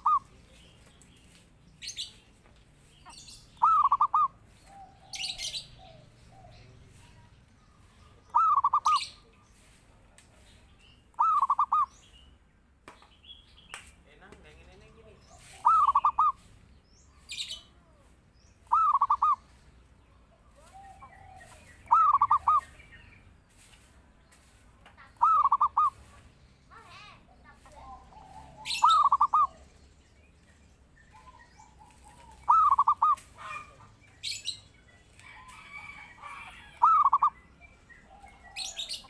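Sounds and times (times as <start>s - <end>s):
dove cooing: 0.0s - 0.4s, 3.6s - 6.8s, 8.3s - 9.2s, 11.2s - 11.9s, 15.4s - 16.4s, 18.6s - 19.4s, 20.6s - 22.8s, 25.2s - 26.0s, 27.8s - 29.6s, 31.1s - 33.8s, 35.8s - 37.4s.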